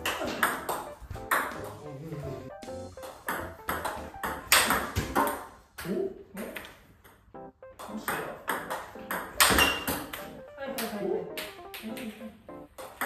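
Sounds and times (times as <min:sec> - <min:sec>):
table tennis ball pinging: 0:00.0 - 0:01.8, 0:03.0 - 0:05.5, 0:07.7 - 0:13.0
background music: 0:00.0 - 0:05.5, 0:07.3 - 0:13.0.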